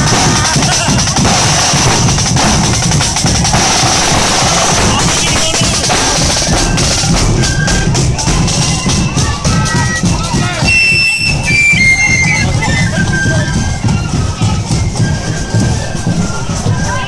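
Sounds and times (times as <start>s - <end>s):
side drums and bass drum marching: 0.0s - 17.0s.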